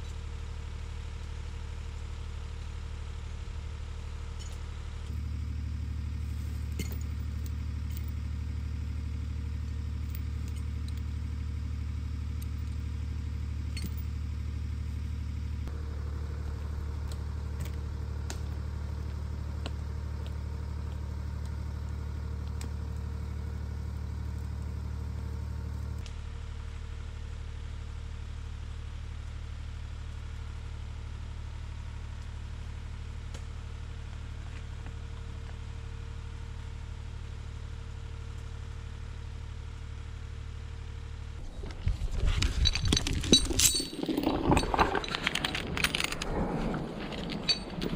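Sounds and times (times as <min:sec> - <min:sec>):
tractor diesel engine running: 0:00.0 - 0:26.1, 0:33.8 - 0:47.9
chain clinking: 0:06.6 - 0:08.2, 0:13.7 - 0:14.1, 0:41.5 - 0:47.9.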